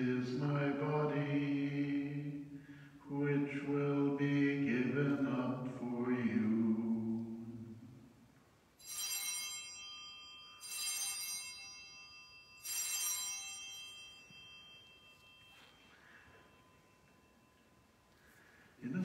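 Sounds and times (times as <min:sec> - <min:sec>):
altar bells ringing: 0:08.8 - 0:19.0.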